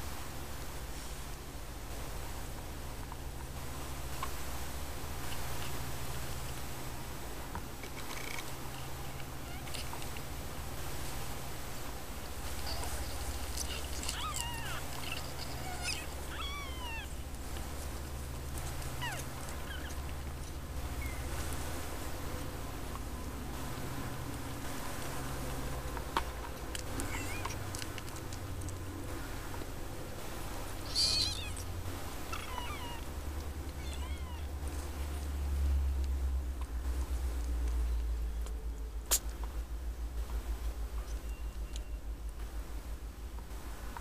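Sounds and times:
low steady rumble: 0:00.0 - 0:44.0
steady low hum: 0:00.0 - 0:44.0
kittens mewing: 0:09.2 - 0:10.2, 0:12.5 - 0:17.4, 0:18.6 - 0:20.3, 0:26.9 - 0:27.7, 0:30.7 - 0:34.7.

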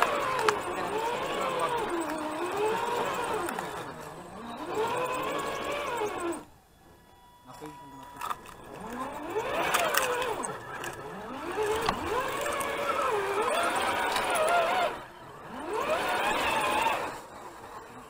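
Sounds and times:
electric motor and gear whine: 0:00.0 - 0:18.0.

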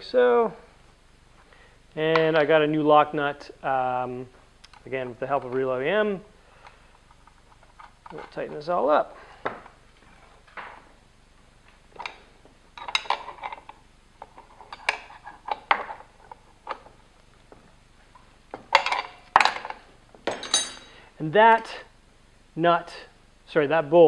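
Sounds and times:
wrench clinking on metal: 0:12.8 - 0:13.7, 0:18.7 - 0:21.0.

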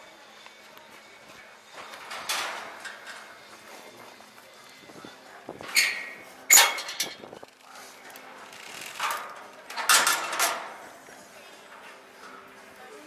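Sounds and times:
metal hardware clanking: 0:01.8 - 0:03.4, 0:05.6 - 0:07.4, 0:09.0 - 0:10.8.

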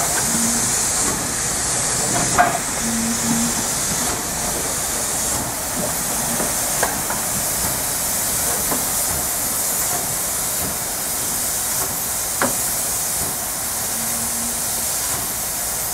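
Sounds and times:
steam hissing: 0:00.0 - 0:15.9.

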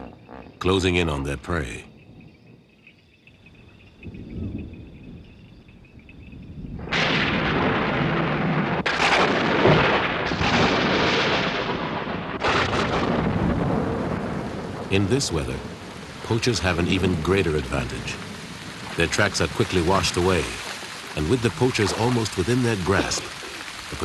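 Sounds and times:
distant thunder rumble: 0:03.5 - 0:24.0
loud thunderclaps: 0:04.0 - 0:05.3, 0:06.4 - 0:24.0.

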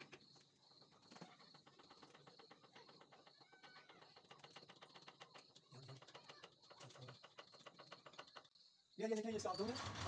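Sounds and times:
faint irregular clicks: 0:01.1 - 0:08.6.

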